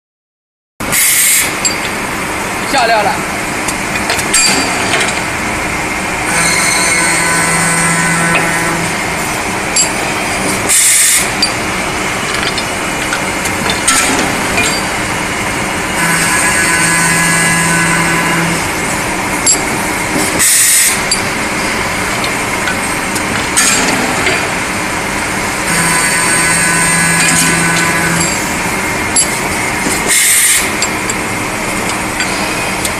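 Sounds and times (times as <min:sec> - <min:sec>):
machine hum: 0:01.4 - 0:32.9
humming tone: 0:06.2 - 0:19.8, 0:20.4 - 0:29.4.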